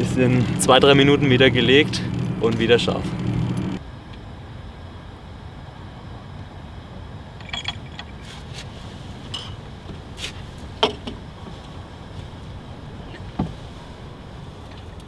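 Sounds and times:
small clicks and clinks: 7.4s - 8.2s.

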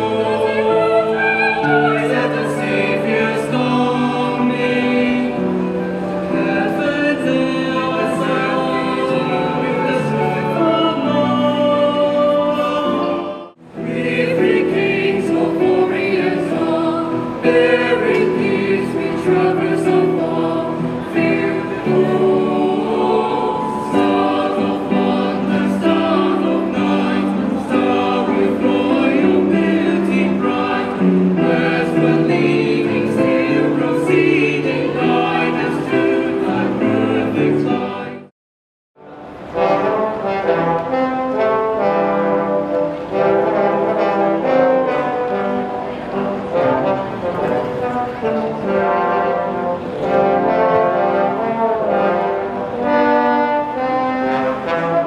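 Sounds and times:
mixed choir singing in harmony: 0.0s - 38.3s, 39.1s - 55.0s.

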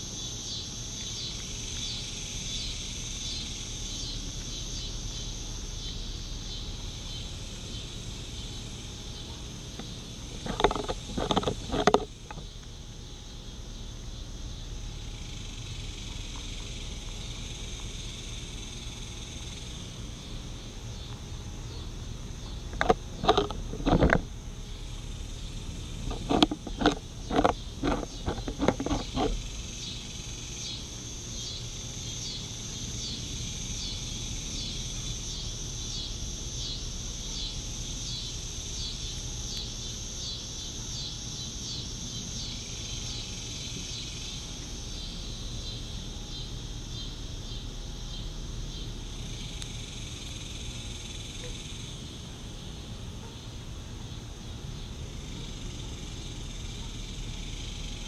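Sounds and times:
insects chirping: 0.0s - 58.0s
rabbit crunching carrot: 10.3s - 12.4s, 22.7s - 24.3s, 25.7s - 29.8s.

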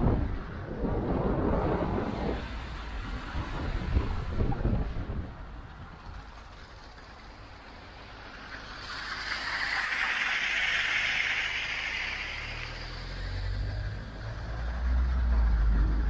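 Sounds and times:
floodwater pouring and splashing: 1.2s - 15.0s
car engine humming: 5.4s - 16.0s.

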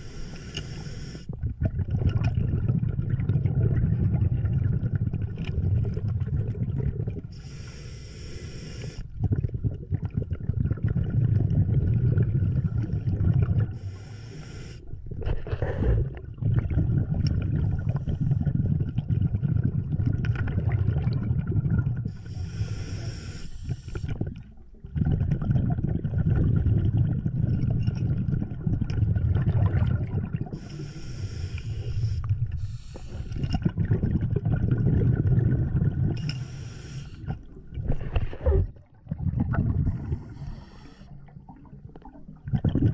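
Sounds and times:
diver breathing through regulator: 0.0s - 1.3s, 7.3s - 9.1s, 13.7s - 16.2s, 22.1s - 24.2s, 30.5s - 33.6s, 36.2s - 38.6s, 39.9s - 41.4s
bubbling rumble of exhaled air: 0.0s - 7.7s, 8.4s - 42.9s.

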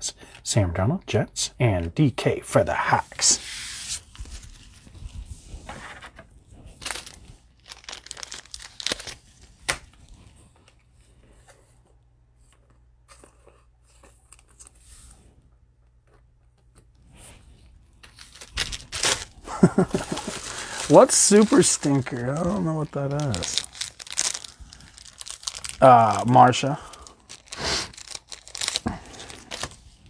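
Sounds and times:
plastic wrappers crinkling: 6.8s - 9.9s, 18.0s - 29.9s.

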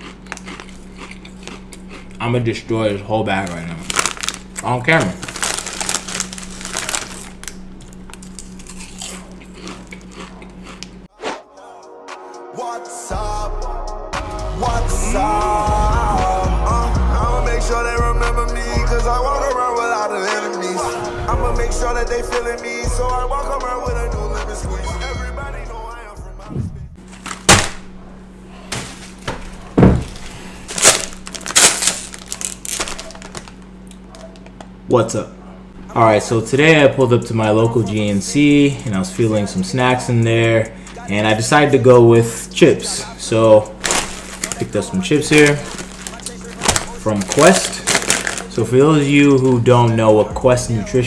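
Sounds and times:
chip bag crinkling: 0.0s - 11.0s, 27.0s - 27.8s, 28.7s - 34.6s, 43.1s - 49.4s
chips crunching and chewing: 0.0s - 11.1s, 30.2s - 34.6s, 43.3s - 49.0s
faint steady hum: 0.0s - 11.1s
dull thump: 28.7s - 30.2s.

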